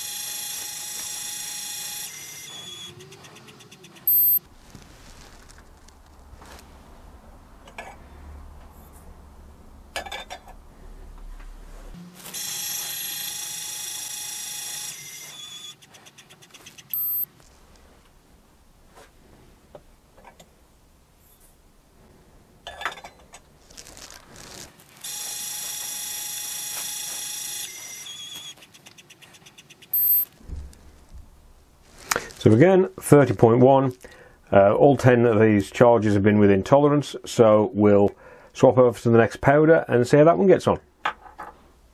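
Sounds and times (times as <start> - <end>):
dispensing motor whining: 0.0 - 4.3
short beep: 4.1 - 4.4, 17.0 - 17.3, 30.0 - 30.3.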